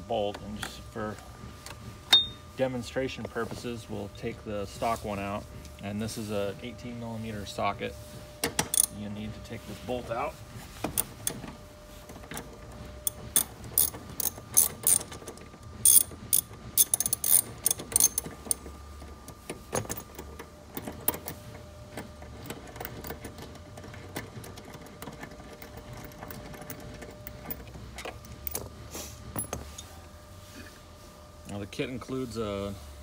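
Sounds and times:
ratchet wrench clicking: 0:08.7 - 0:08.9, 0:13.1 - 0:15.2, 0:15.8 - 0:18.6.

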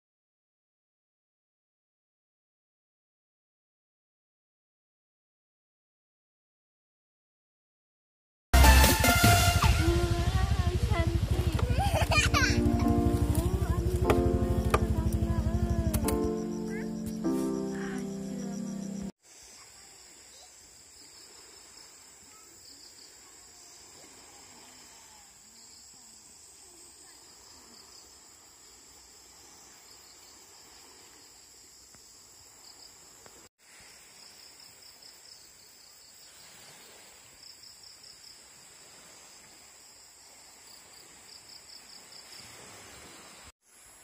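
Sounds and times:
insects buzzing high-pitched: 0:09.1 - 0:23.8.

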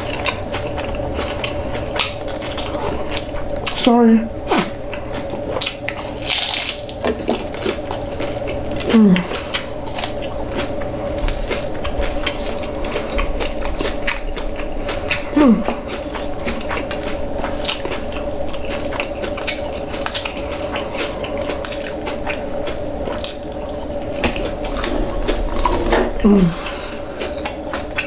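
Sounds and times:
crunchy tacos being chewed: 0:00.0 - 0:28.0.

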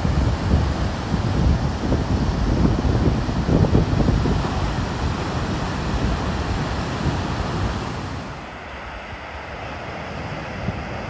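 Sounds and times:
wind buffeting microphone: 0:00.0 - 0:08.8
surf crashing: 0:00.0 - 0:09.2.

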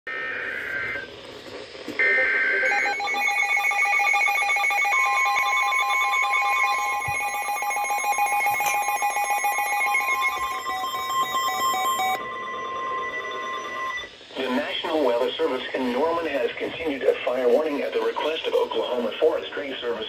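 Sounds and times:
steady warning tone: 0:02.0 - 0:20.0
warbling data header bursts: 0:02.0 - 0:20.0
rapid pulsing alarm beeps: 0:02.6 - 0:14.8.

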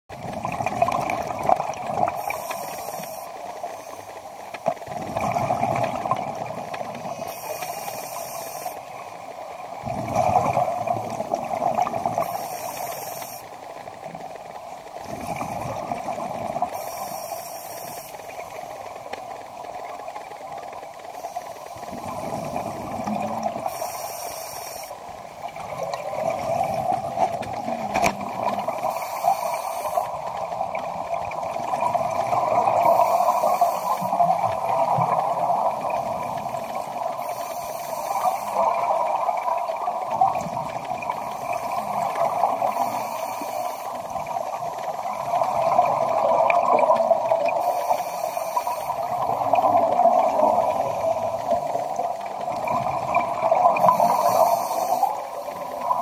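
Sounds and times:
water noise: 0:00.1 - 0:56.0
gurgling exhalation bubbles: 0:05.0 - 0:06.4
diver breathing through regulator: 0:53.8 - 0:55.8.

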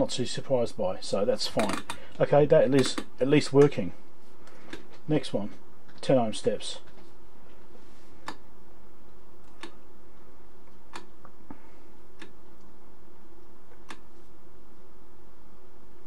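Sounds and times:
rotary switch detent clicks: 0:08.2 - 0:08.4, 0:09.4 - 0:09.8, 0:10.9 - 0:11.3, 0:12.1 - 0:12.4, 0:13.8 - 0:14.1.

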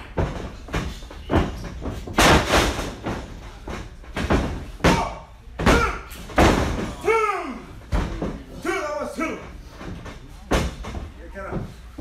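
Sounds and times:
person shouting: 0:06.9 - 0:07.7.

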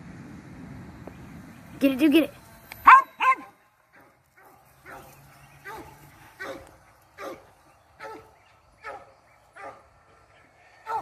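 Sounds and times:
dog barking: 0:02.9 - 0:09.9.

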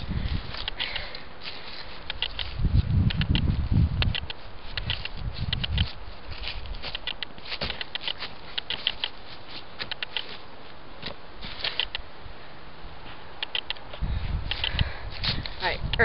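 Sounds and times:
footsteps crunching dry leaves: 0:01.4 - 0:03.7, 0:04.4 - 0:10.7.

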